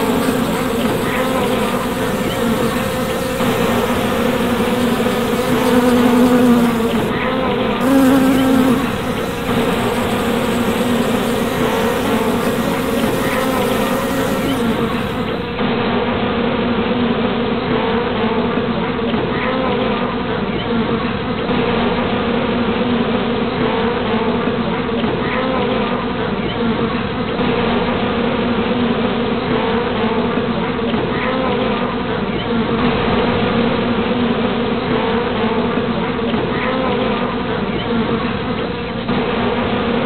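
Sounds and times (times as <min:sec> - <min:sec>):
bee swarm buzzing: 0:00.0 - 0:15.6.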